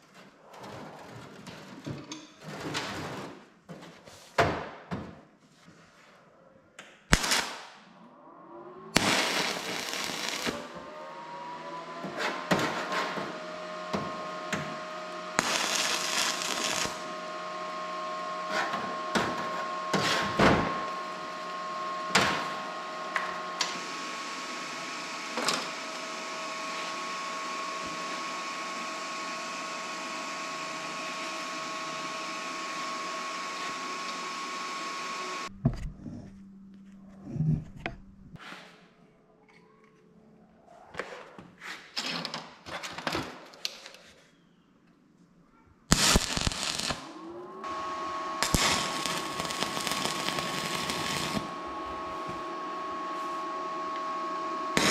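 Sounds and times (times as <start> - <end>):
welding arc hiss: 7.1 - 7.7, 9.0 - 10.8, 15.3 - 17.2, 45.9 - 47.0, 48.4 - 52.4
motor hum: 7.9 - 38.4, 45.9 - 54.9.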